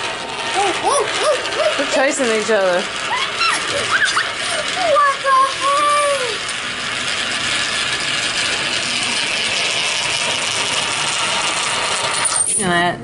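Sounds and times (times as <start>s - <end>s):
coins rattling in a funnel: 7.4s - 12.8s.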